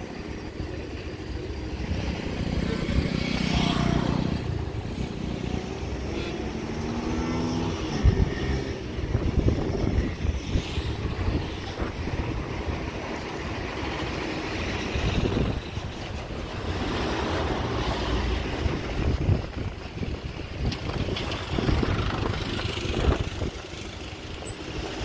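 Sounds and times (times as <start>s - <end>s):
wind buffeting microphone: 7.0s - 25.0s
vehicle engine running: 18.5s - 25.0s.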